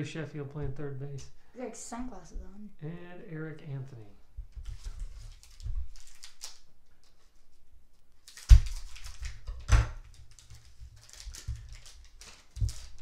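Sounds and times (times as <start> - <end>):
cards rustling: 4.6 - 13.0.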